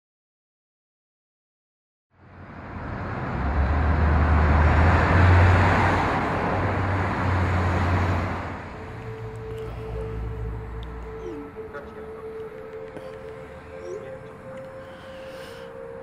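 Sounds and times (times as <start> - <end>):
rushing traffic-like rumble: 2.2 - 16.0
faint high tone: 9.6 - 12.4, 13.4 - 15.1.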